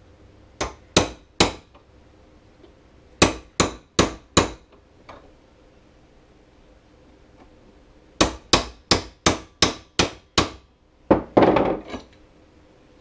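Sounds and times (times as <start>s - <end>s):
hammer striking steel punch: 0.6s - 1.7s, 3.2s - 4.7s, 8.2s - 10.7s.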